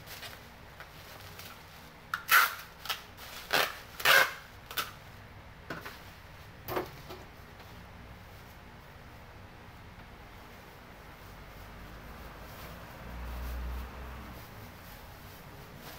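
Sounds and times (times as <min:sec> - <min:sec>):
bubble wrap crackling and rustling: 0:00.0 - 0:05.2, 0:10.3 - 0:15.9.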